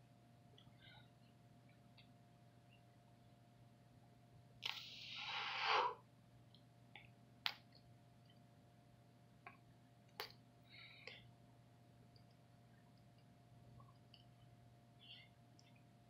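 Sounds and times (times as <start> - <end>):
person blowing breath out: 4.7 - 6.0.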